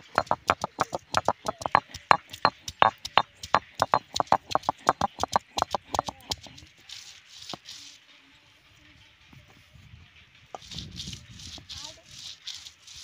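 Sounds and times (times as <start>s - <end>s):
stone roller knocking on stone slab: 0.0s - 6.6s.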